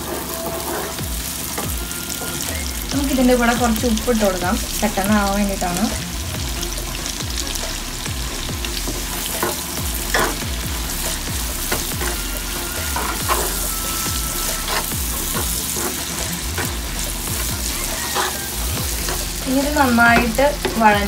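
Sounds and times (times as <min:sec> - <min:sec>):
spatula scraping a pan: 0:00.0 - 0:02.4, 0:07.8 - 0:21.0
onions sizzling in a frying pan: 0:00.0 - 0:21.0.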